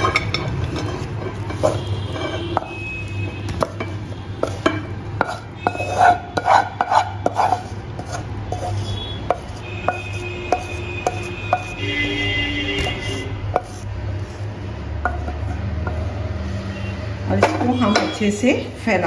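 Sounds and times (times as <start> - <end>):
wooden spatula scraping a pan: 0.0 - 2.8, 3.6 - 18.2.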